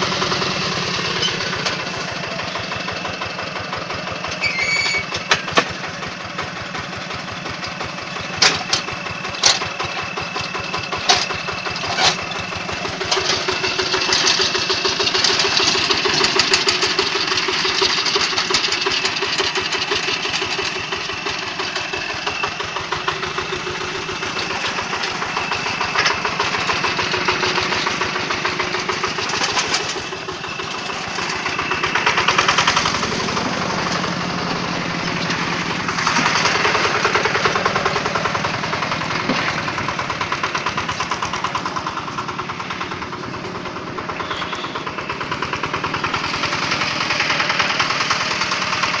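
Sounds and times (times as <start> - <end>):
small engine clattering: 0.0 - 49.0.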